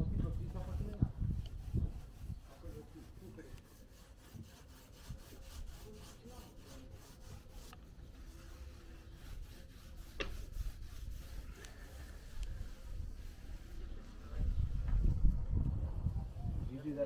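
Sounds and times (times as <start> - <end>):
paint roller rubbing: 0.2 - 15.1.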